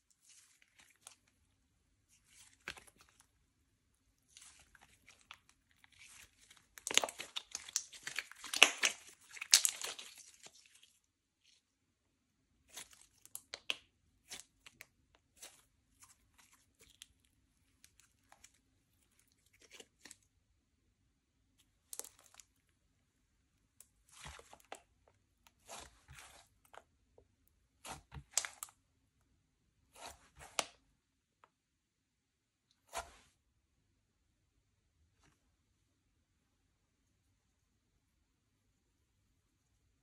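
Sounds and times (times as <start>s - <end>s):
slime crackling and popping: 4.4s - 10.6s.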